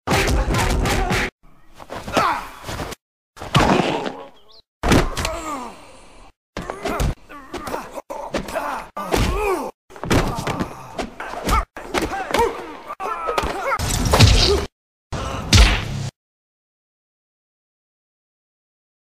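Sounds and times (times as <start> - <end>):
thwacks and thumps: 1.9 - 5.4, 6.6 - 12.6, 13.4 - 14.7, 15.5 - 16.0.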